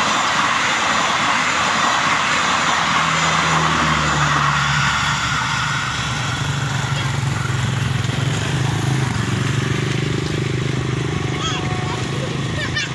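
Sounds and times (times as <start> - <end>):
train wheels rumbling on rails: 0.0 - 12.9
motorcycle engines idling: 5.2 - 12.9.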